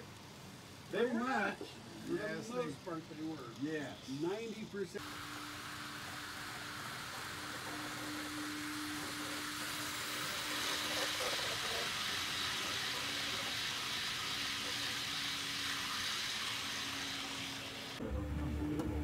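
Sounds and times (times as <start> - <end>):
steady hum: 5.0 - 15.6
model train wheels rolling: 6.0 - 18.0.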